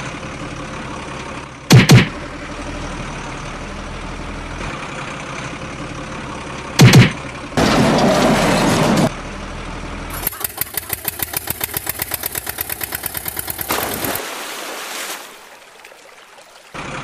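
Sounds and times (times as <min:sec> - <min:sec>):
truck engine idling: 0:00.0 - 0:14.2
loud thumps: 0:01.7 - 0:02.2, 0:06.8 - 0:07.2.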